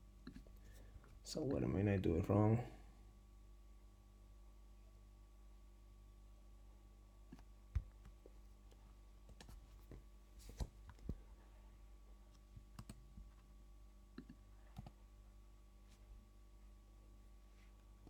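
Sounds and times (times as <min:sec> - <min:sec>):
low steady hum: 0:00.0 - 0:18.0
keyboard and mouse clicks: 0:12.7 - 0:13.0, 0:14.2 - 0:15.0.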